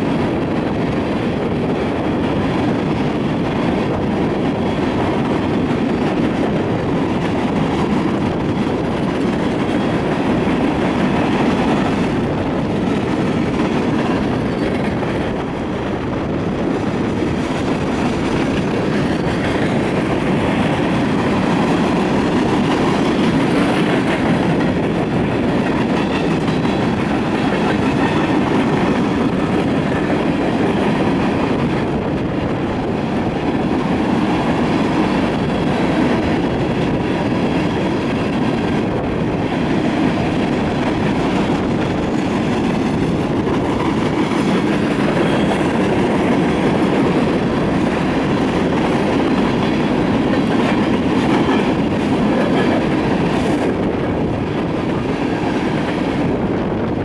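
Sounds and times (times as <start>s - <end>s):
freight train wheels rumbling on rail: 0.0s - 57.0s.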